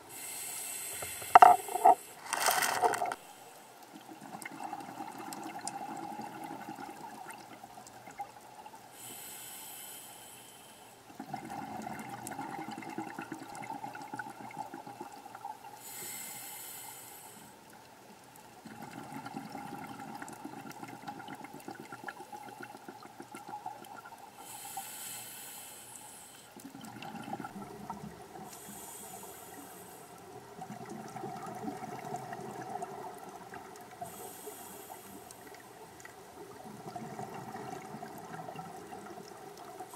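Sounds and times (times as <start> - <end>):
regulator breathing hiss: 0.0 - 2.4, 8.9 - 11.0, 15.8 - 17.6, 24.4 - 26.6, 28.5 - 30.2, 34.0 - 35.5
exhaled bubbles gurgling: 1.2 - 3.2, 3.9 - 8.8, 11.1 - 15.8, 18.6 - 24.4, 26.6 - 28.9, 30.2 - 34.5, 35.4 - 39.9.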